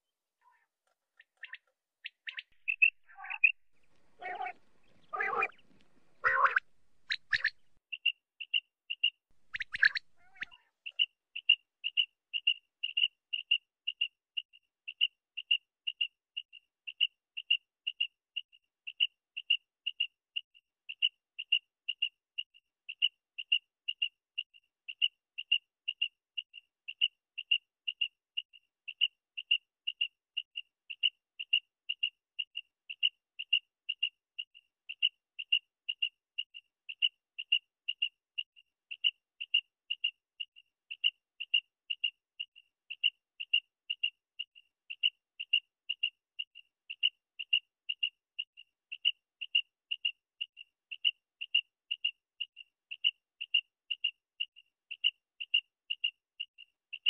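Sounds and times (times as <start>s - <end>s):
quail calling: 1.3s - 7.8s, 9.4s - 11.0s.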